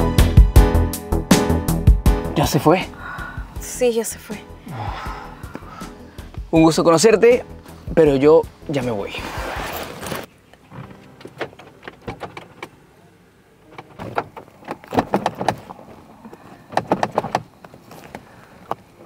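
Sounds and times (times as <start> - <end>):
car door handle clicking and rattling: 11.2 - 12.8, 13.7 - 16.0, 16.7 - 17.6.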